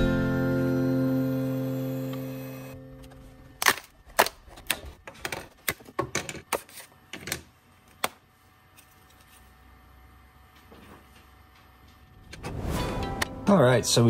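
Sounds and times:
plastic parts snapping off plate: 3.6s - 7.4s.

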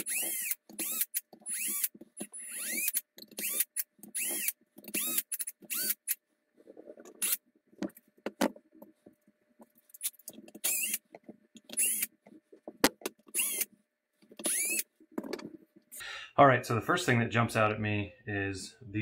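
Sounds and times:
cordless drill motor whining: 0.0s - 6.1s, 10.6s - 11.0s, 11.7s - 12.1s, 13.3s - 13.7s, 14.4s - 14.8s
clicks and rustles of handling screws: 0.0s - 15.9s.

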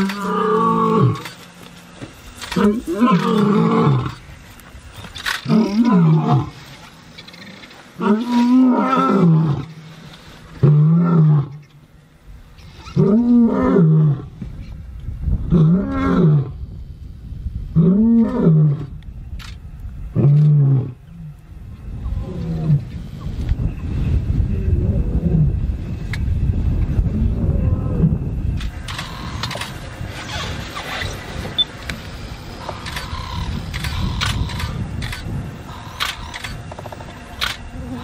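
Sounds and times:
lion roaring: 0.0s - 1.4s, 2.5s - 4.2s, 5.4s - 6.6s, 7.3s - 9.8s, 10.6s - 11.6s, 12.9s - 14.3s.

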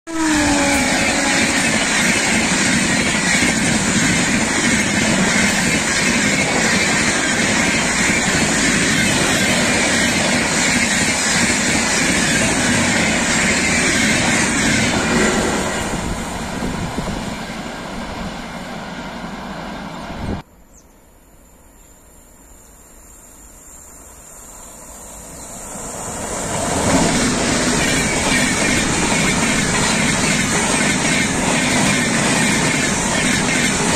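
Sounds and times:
train passing at speed: 0.1s - 20.5s, 23.4s - 33.9s
wheels clattering on rails: 26.7s - 33.9s.

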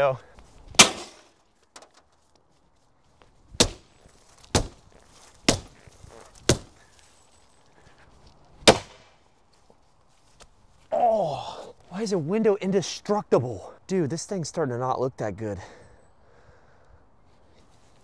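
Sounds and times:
crowbar striking windshield glass: 0.8s - 1.2s.

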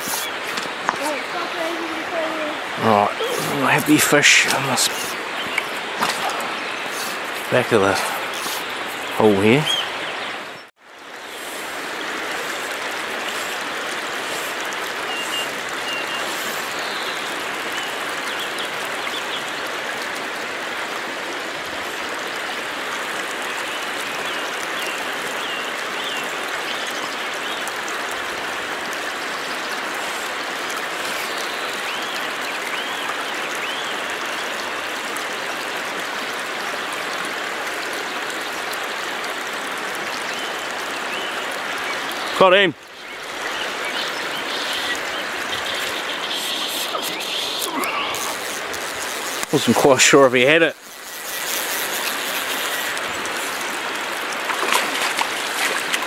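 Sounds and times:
flowing stream: 0.0s - 56.0s.

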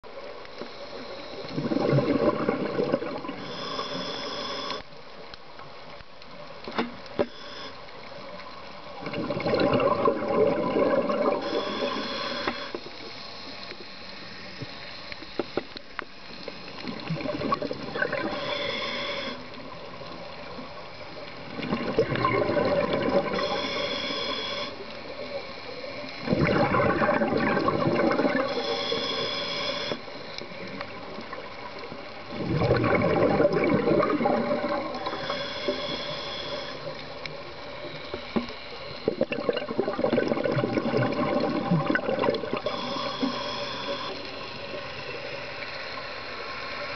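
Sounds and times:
regulator hissing on inhale: 0.4s - 1.8s, 3.2s - 5.0s, 7.1s - 8.4s, 11.3s - 21.3s, 23.1s - 26.4s, 27.6s - 32.4s, 34.6s - 39.4s, 42.4s - 46.9s
exhaled bubbles rushing underwater: 1.1s - 3.8s, 8.8s - 12.7s, 16.7s - 46.9s.

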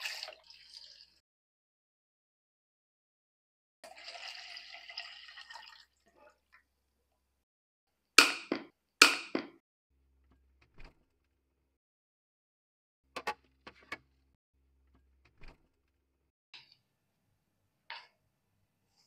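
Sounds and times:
water pouring and splashing: 0.0s - 1.2s.

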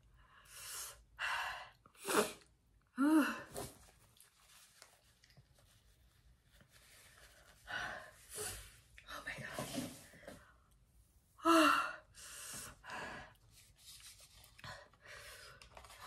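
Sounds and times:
tissue rustling: 3.5s - 7.8s.

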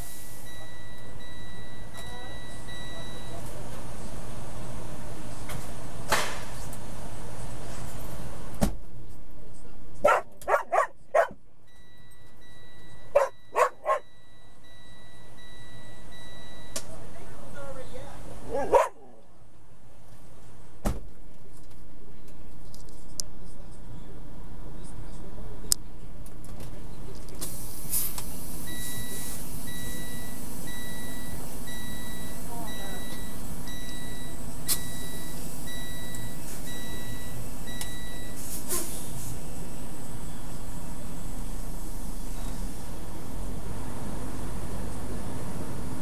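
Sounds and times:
truck engine idling: 0.0s - 22.5s, 23.4s - 46.0s
electronic beep: 0.4s - 3.4s, 11.7s - 16.8s, 28.7s - 38.4s
dog barking: 10.0s - 11.4s, 13.1s - 14.1s, 18.5s - 19.2s.

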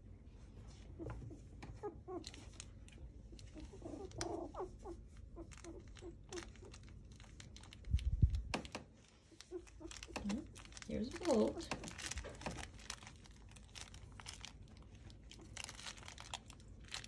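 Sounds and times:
puppies squeaking and whimpering: 0.9s - 6.9s, 9.2s - 13.0s
dull low rumble: 5.5s - 8.6s.

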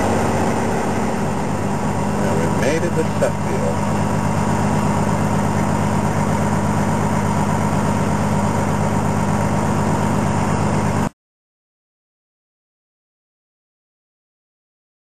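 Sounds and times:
diesel truck engine running: 0.0s - 11.1s.

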